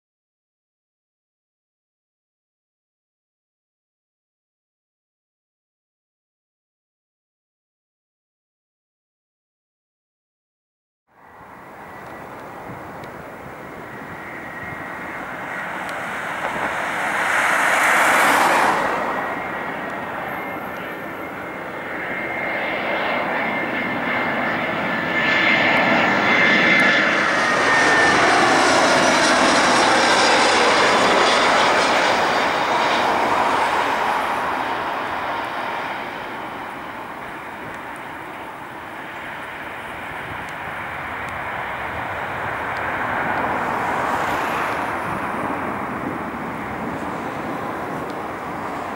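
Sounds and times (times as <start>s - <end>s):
jet engines rumbling with fan whine: 11.1s - 48.9s.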